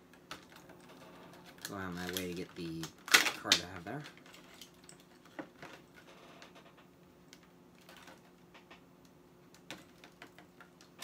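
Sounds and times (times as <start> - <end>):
faint steady hum: 0.0 - 11.0
plastic blister pack crinkling: 0.1 - 6.5.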